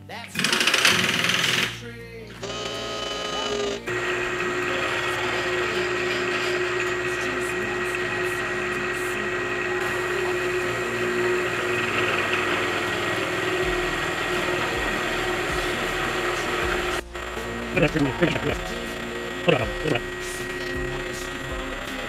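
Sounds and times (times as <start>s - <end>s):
milling machine cutting steel: 0.4s - 1.8s, 2.4s - 22.0s
constant machine hum: 2.4s - 22.0s.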